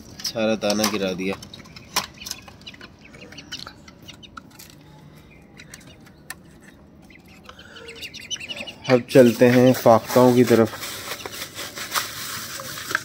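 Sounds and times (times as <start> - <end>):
pigeons clicking and rustling: 0.0 - 13.0
faint bird chirps: 1.5 - 9.2.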